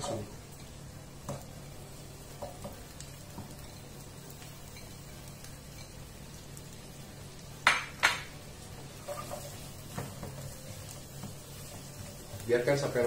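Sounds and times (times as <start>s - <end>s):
vegetables sizzling in a pan: 0.0s - 13.0s
spatula stirring: 8.8s - 13.0s.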